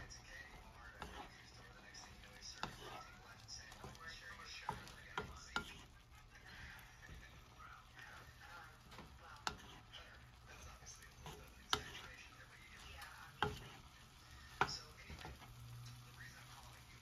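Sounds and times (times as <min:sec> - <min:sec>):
spatula knocking against pan: 0:00.0 - 0:05.8, 0:08.9 - 0:09.8, 0:11.2 - 0:12.2, 0:12.8 - 0:15.5
spatula stirring meat in pan: 0:00.0 - 0:17.0.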